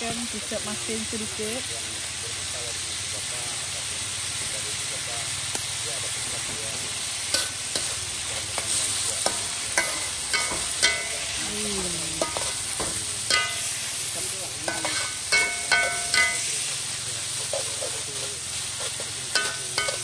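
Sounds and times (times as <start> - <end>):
food sizzling: 0.0 - 20.0
metal spatula scraping wok: 6.2 - 11.4, 12.1 - 14.0, 14.6 - 20.0.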